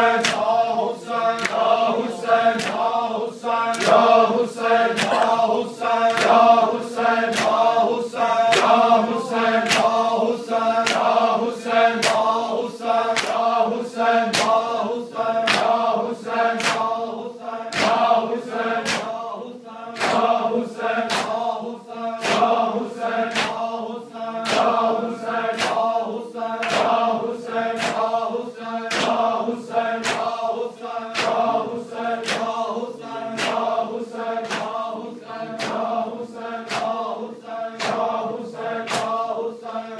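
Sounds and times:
men chanting in unison: 0.0s - 39.9s
chest-beating slaps: 0.2s - 0.7s, 1.3s - 1.8s, 2.5s - 3.0s, 4.9s - 6.5s, 7.3s - 7.7s, 8.5s - 8.8s, 9.6s - 10.0s, 10.8s - 11.2s, 12.0s - 12.4s, 13.2s - 13.5s, 14.3s - 14.7s, 15.5s - 15.9s, 16.6s - 17.0s, 18.8s - 19.2s, 21.1s - 21.4s, 22.2s - 22.6s, 23.3s - 23.7s, 25.5s - 25.9s, 27.8s - 28.1s, 28.9s - 29.3s, 30.0s - 30.4s, 31.1s - 31.6s, 32.2s - 32.6s, 33.3s - 33.8s, 34.4s - 34.8s, 35.5s - 36.0s, 36.6s - 37.0s, 37.8s - 38.2s, 38.9s - 39.2s.

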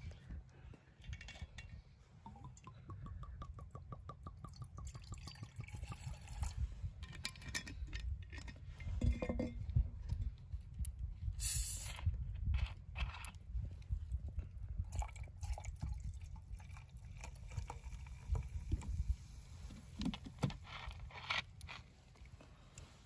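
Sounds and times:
short hiss: 11.4s - 12.0s.

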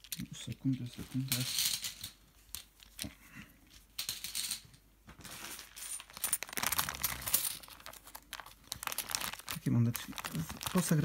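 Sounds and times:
plastic bag handled: 5.1s - 11.0s
coins jingling in plastic bag: 5.5s - 11.0s.

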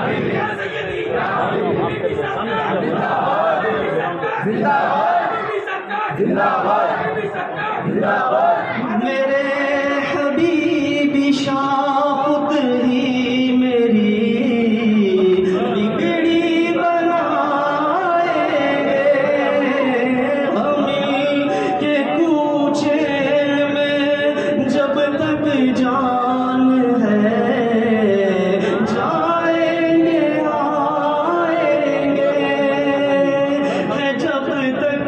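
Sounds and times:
person singing devotional song: 8.9s - 35.0s.

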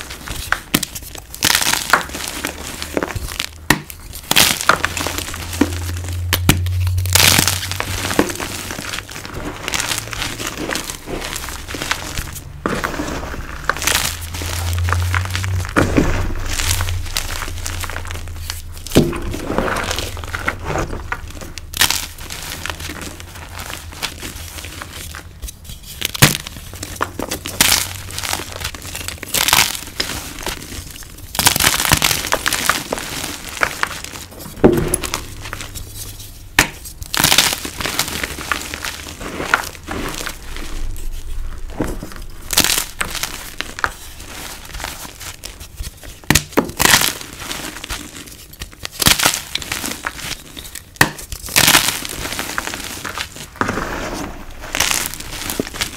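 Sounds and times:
chalk blocks crushed by hand: 0.0s - 55.9s.

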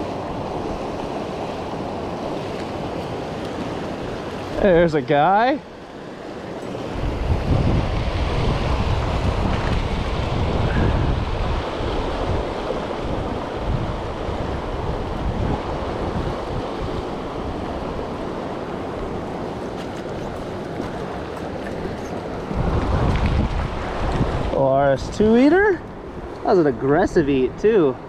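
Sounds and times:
wind buffeting microphone: 6.0s - 28.0s.

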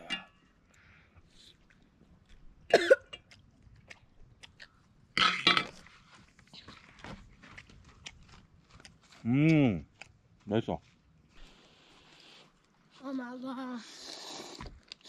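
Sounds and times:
man coughing: 2.7s - 3.1s.

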